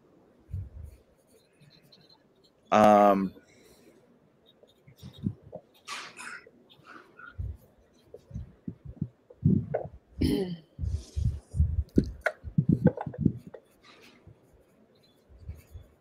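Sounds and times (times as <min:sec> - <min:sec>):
scratchy hiss: 0:00.0 - 0:09.8
pen writing on paper: 0:00.5 - 0:02.8, 0:04.4 - 0:09.9, 0:11.1 - 0:16.0
low thuds and taps: 0:11.6 - 0:13.6.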